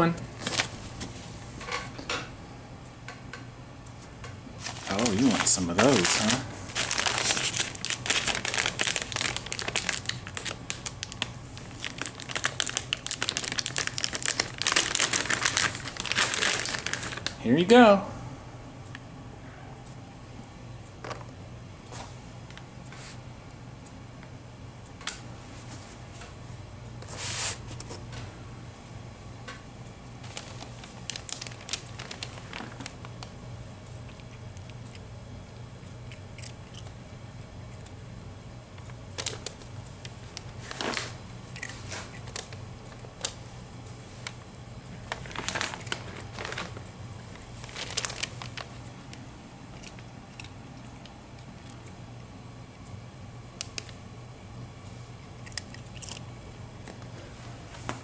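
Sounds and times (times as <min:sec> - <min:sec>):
cardboard rustle: 0:04.6 - 0:10.5, 0:30.2 - 0:33.0, 0:45.1 - 0:46.8
cat crunching dry treats: 0:04.6 - 0:17.4, 0:30.3 - 0:33.4, 0:34.1 - 0:35.1, 0:36.0 - 0:37.0, 0:38.8 - 0:43.4, 0:45.0 - 0:51.9, 0:55.4 - 0:56.3.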